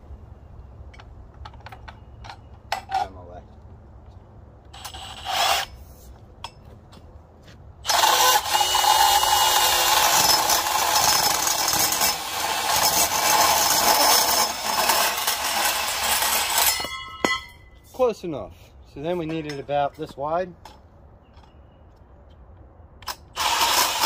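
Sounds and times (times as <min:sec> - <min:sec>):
bandsaw cutting metal: 0:04.8 - 0:05.8, 0:07.8 - 0:17.3, 0:23.0 - 0:24.0.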